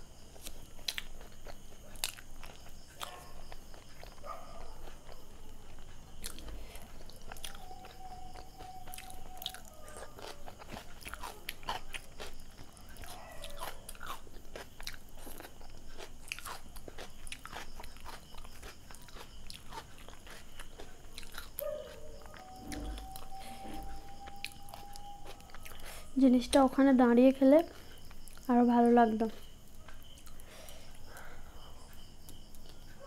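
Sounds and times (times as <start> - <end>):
wet chewing mouth clicks: 0.4 - 23.3.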